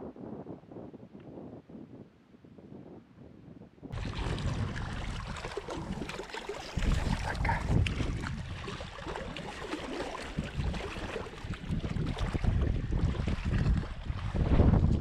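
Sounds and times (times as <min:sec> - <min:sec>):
wind buffeting microphone: 0:00.0 - 0:15.0
water splashing against rocks: 0:03.9 - 0:15.0.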